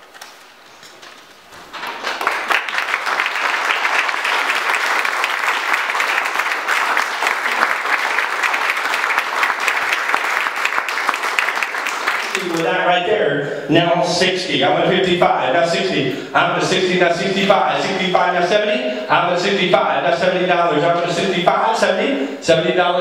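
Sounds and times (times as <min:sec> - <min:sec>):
audience applauding: 0:01.7 - 0:12.8.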